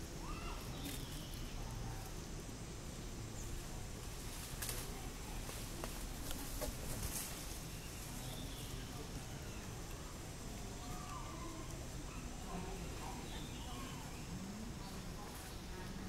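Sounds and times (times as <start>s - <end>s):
faint bird chirps: 0.2s - 2.1s, 10.8s - 15.7s.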